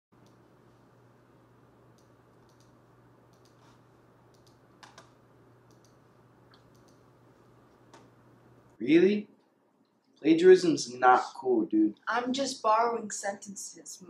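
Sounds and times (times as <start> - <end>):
low steady hum: 0.2 - 14.0
typing on computer keyboard: 2.0 - 3.6, 4.3 - 5.1, 5.7 - 7.0.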